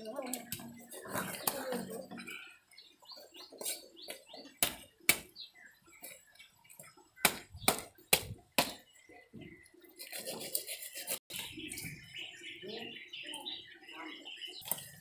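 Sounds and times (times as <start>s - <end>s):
knife scraping fish scales: 10.0s - 11.3s.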